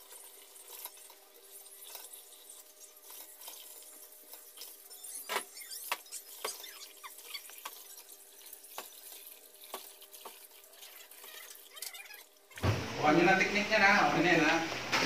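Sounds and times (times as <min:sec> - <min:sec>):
tap water running into basin: 0:00.0 - 0:13.3
water sloshing and knocks: 0:08.7 - 0:13.0.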